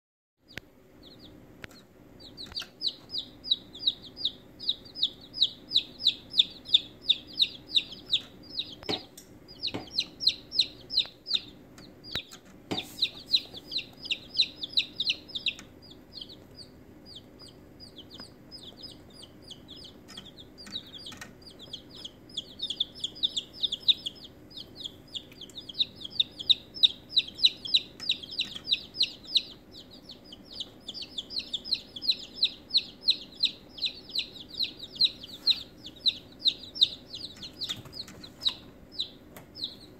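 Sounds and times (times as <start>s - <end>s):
chicks peeping: 0.4s - 39.9s
sharp knocks: 8.8s - 9.1s.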